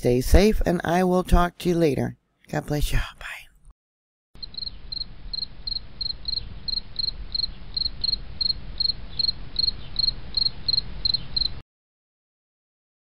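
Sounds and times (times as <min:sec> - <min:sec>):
low steady rumble: 0:04.4 - 0:11.4
cricket chirping: 0:04.4 - 0:11.6.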